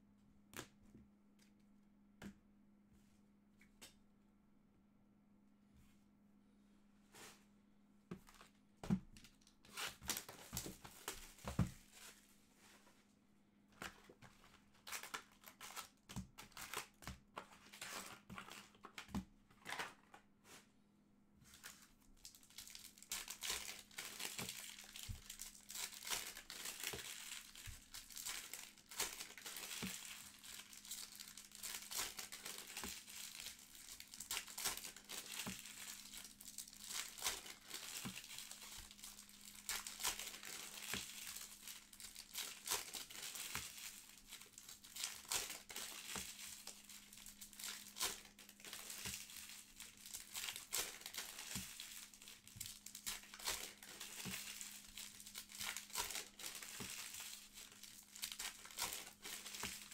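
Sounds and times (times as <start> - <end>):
wrappers tearing and crinkling: 9.2 - 12.2, 14.0 - 20.1, 21.5 - 59.9.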